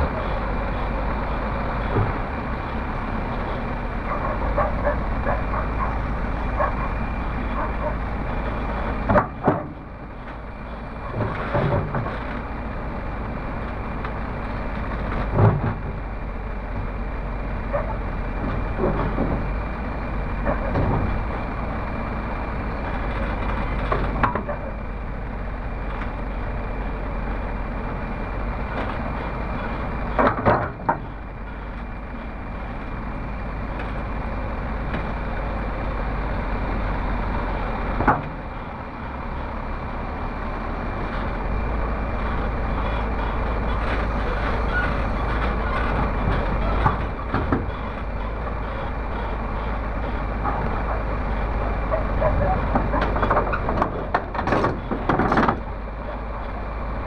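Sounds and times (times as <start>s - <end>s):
excavator diesel engine running: 0.0s - 57.0s
metallic knocks and clanks: 52.0s - 55.7s.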